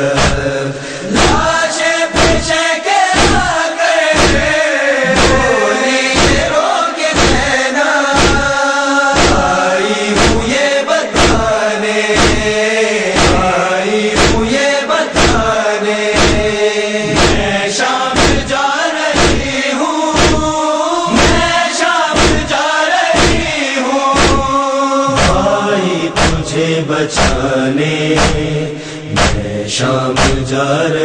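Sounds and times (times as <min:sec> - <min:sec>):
chorus of voices chanting: 0:00.0 - 0:31.0
hands beating on chests: 0:00.2 - 0:00.5, 0:01.1 - 0:01.5, 0:02.2 - 0:02.5, 0:03.2 - 0:03.6, 0:04.2 - 0:05.5, 0:06.2 - 0:06.5, 0:07.2 - 0:07.5, 0:08.2 - 0:08.6, 0:09.2 - 0:09.5, 0:10.2 - 0:10.5, 0:11.2 - 0:11.5, 0:12.2 - 0:12.6, 0:13.2 - 0:13.5, 0:14.2 - 0:14.5, 0:15.2 - 0:15.5, 0:16.2 - 0:17.5, 0:18.2 - 0:18.5, 0:19.2 - 0:19.6, 0:20.2 - 0:20.5, 0:21.1 - 0:21.6, 0:22.2 - 0:22.5, 0:23.2 - 0:23.6, 0:24.2 - 0:24.5, 0:25.1 - 0:25.6, 0:26.2 - 0:26.4, 0:27.2 - 0:27.4, 0:28.2 - 0:28.4, 0:29.2 - 0:29.4, 0:30.2 - 0:30.4.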